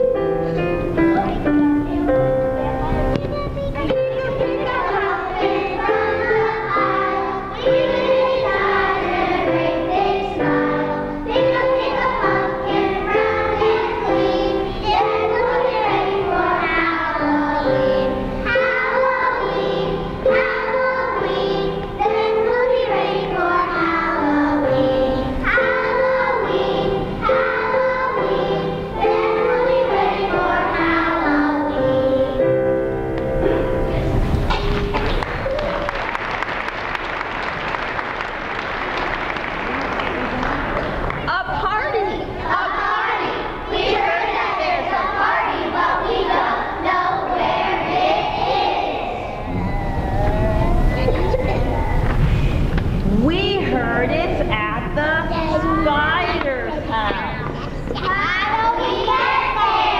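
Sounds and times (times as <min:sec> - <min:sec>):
piano accompaniment: 0:00.0 - 0:35.5
children's choir singing: 0:03.8 - 0:35.2, 0:42.1 - 0:52.2, 0:57.8 - 0:59.9.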